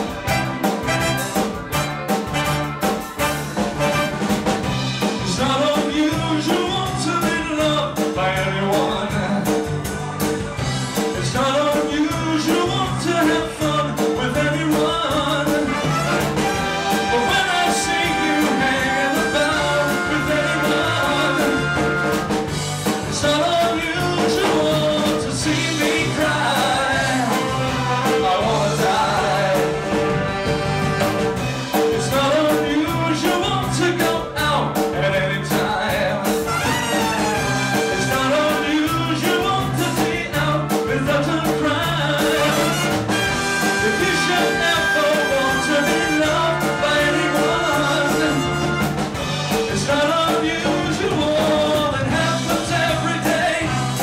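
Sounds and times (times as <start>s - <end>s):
horn section: 0.0s - 6.8s, 15.1s - 32.5s, 36.4s - 39.9s, 41.7s - 54.0s
drums: 0.0s - 54.0s
keyboard: 0.0s - 54.0s.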